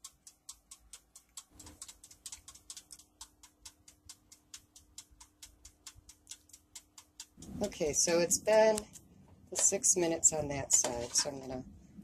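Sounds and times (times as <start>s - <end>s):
timer dial ticking: 0.0s - 11.6s.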